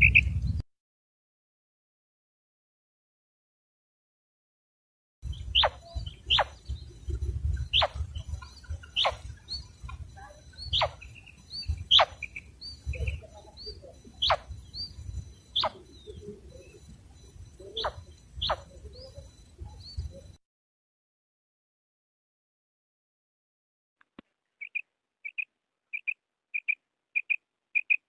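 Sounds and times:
faint small chirps: 5.2 - 20.4
quail calling: 5.2 - 20.4, 24.6 - 28.0.

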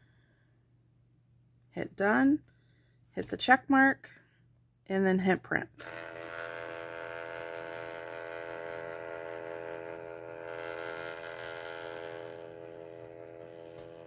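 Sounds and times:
printer motor whining: 5.8 - 14.0.

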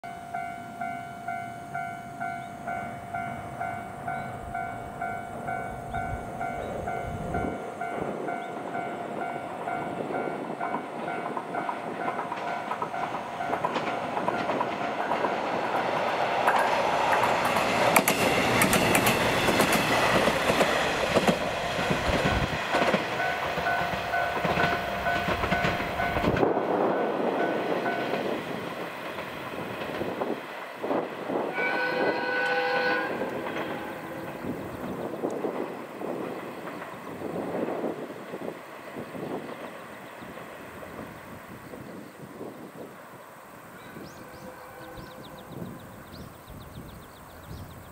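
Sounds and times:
level-crossing alarm ringing: 0.0 - 11.3
diesel railcar passing: 0.0 - 47.9
wheels clicking over rail joints: 9.5 - 31.2.

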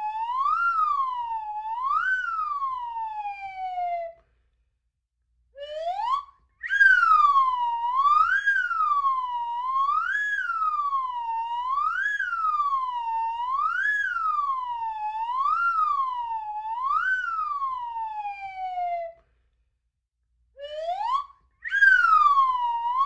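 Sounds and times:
slide whistle swooping: 6.6 - 7.4, 20.6 - 23.0.

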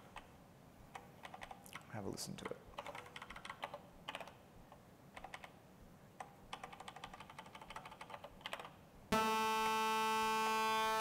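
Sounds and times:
laptop keyboard typing: 0.9 - 1.7, 2.4 - 4.4, 5.2 - 5.6, 6.2 - 8.8
buzzy sawtooth synth tone: 9.1 - 11.0.

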